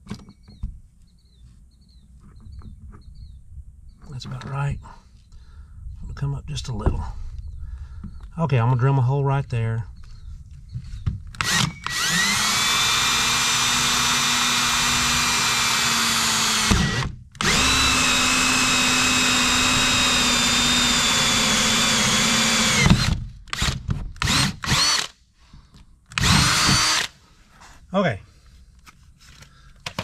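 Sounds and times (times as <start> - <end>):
power drill boring through plastic: 11.4 - 25.2, 26.1 - 27.2.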